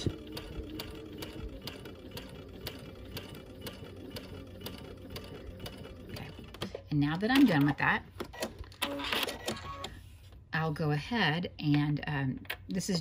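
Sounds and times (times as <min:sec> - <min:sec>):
sewing machine stitching: 0:00.0 - 0:09.7.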